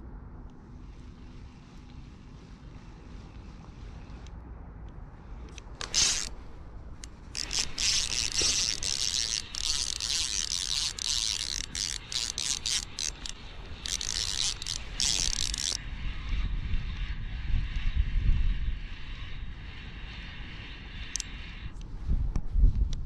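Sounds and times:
low wind rumble on microphone: 0.0 - 23.0
fishing reel drag buzzing: 5.8 - 17.8, 18.6 - 21.8.

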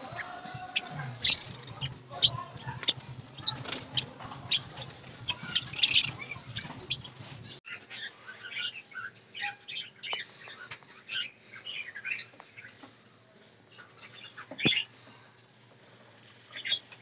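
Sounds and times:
lovebirds chirping and squawking: 0.0 - 13.1, 13.7 - 17.0.

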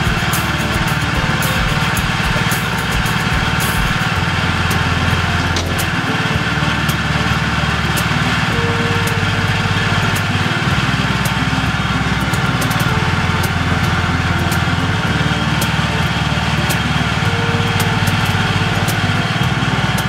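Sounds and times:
loader engine running: 0.0 - 20.0.

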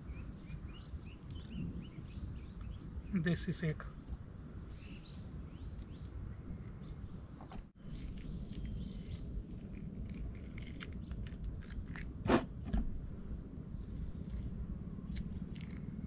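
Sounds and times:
steady low rumble: 0.0 - 16.0
mangoes being peeled and cut: 7.5 - 12.9.

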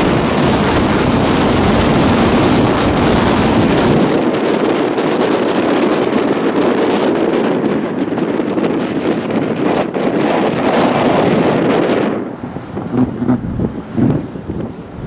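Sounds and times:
wind buffeting microphone: 0.0 - 15.0
rally car engine running: 7.1 - 14.8.

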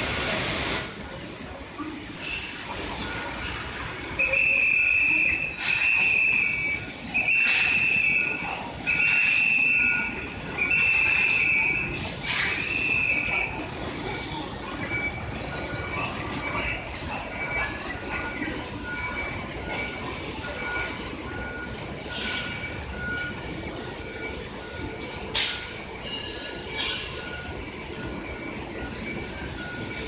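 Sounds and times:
street and building-site noise: 0.0 - 30.0
electronic warning beeper: 25.9 - 30.0.

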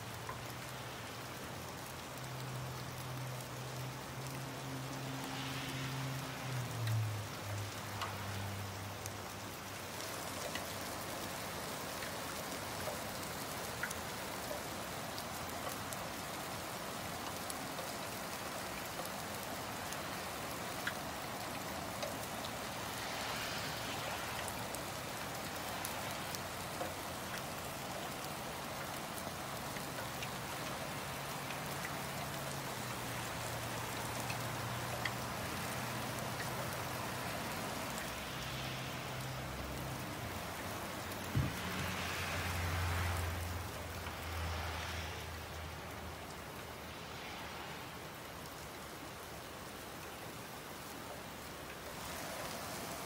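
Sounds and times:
steady rain falling: 0.0 - 53.0
thump: 41.3 - 41.8.

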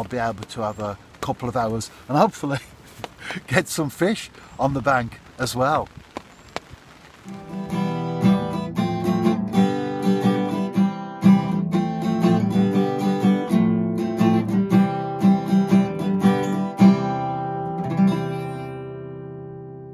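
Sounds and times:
acoustic guitar music: 7.2 - 19.9.

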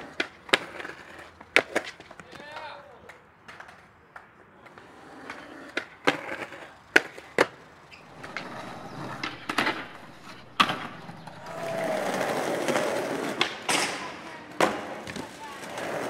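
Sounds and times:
skateboard wheels rolling: 0.0 - 2.4, 4.6 - 16.0
skateboard grinding: 7.9 - 16.0.

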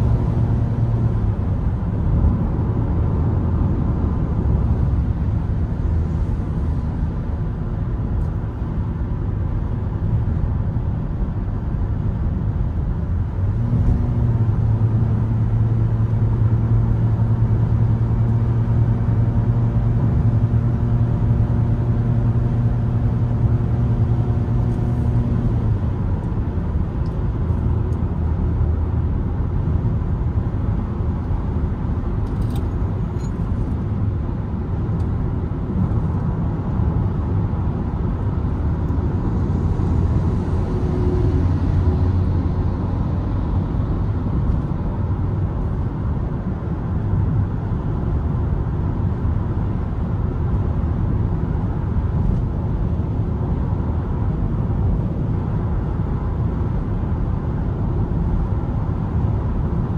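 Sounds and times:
in-car road noise: 0.0 - 59.9
bus passing: 37.1 - 45.6.

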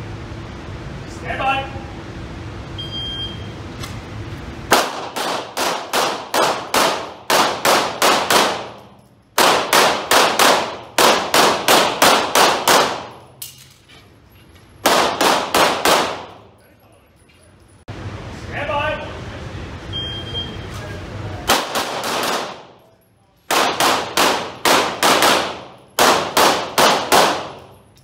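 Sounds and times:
handgun shots ringing indoors: 4.7 - 13.8, 14.8 - 16.5, 21.5 - 22.9, 23.5 - 28.0.

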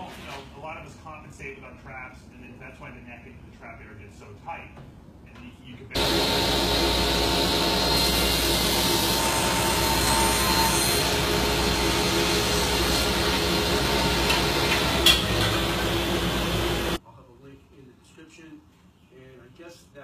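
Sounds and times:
woodworking power tool whine: 6.0 - 17.0.

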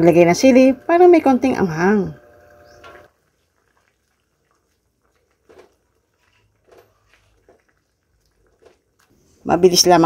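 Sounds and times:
spatula stirring in pan: 3.1 - 9.6.

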